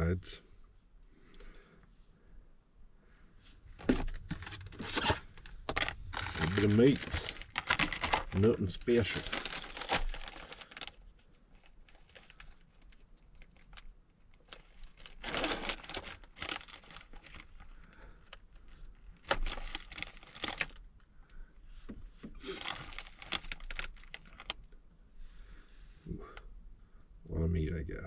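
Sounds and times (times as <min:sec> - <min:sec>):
plastic packaging crinkling: 0:03.8 - 0:20.8, 0:22.4 - 0:24.7.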